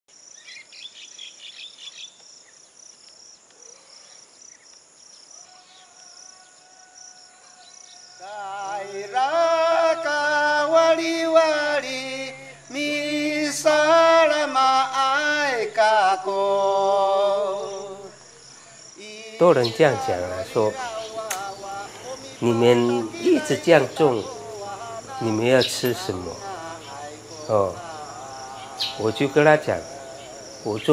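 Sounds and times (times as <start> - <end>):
insects chirping: 0.1 - 30.9
slow sung melody: 5.4 - 30.9
low steady drone: 20.0 - 30.9.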